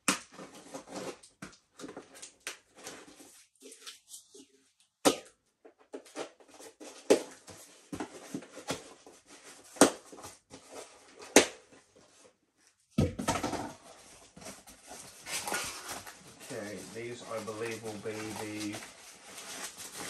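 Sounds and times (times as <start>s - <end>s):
cardboard box being opened: 13.7s - 20.0s.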